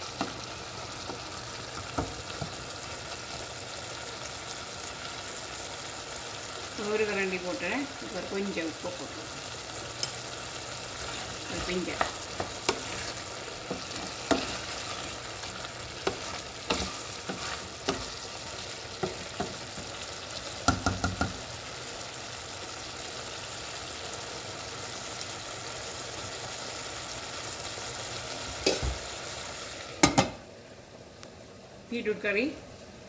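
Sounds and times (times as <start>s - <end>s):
curry sizzling in a pot: 0.0s - 33.0s.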